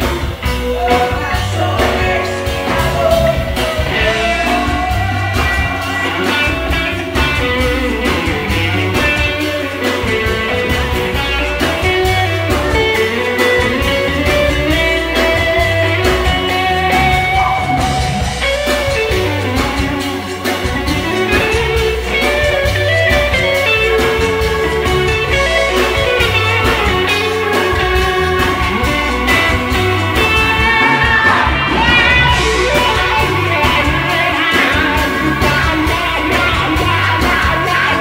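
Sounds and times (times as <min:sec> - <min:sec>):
rock band playing: 0:00.0 - 0:38.0
woman singing: 0:00.5 - 0:06.8.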